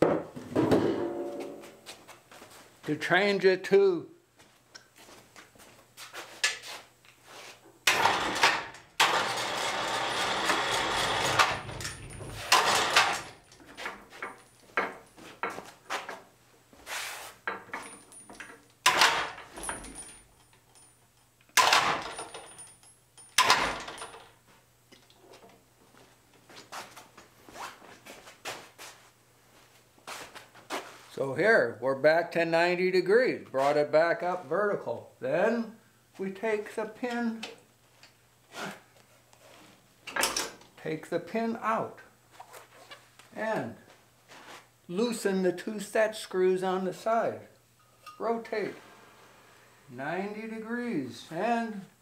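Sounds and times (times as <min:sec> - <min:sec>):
metal clanks and knocks: 0:00.0 - 0:01.8, 0:10.2 - 0:15.6, 0:17.5 - 0:20.8
loud steady machine noise: 0:08.0 - 0:11.8.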